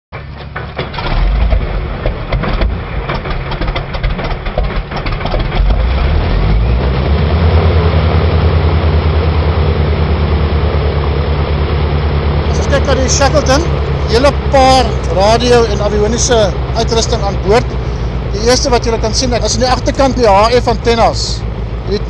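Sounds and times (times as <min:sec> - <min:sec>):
engine pops and coughs: 0:00.2 - 0:06.6
piston engine starting and running: 0:00.2 - 0:22.0.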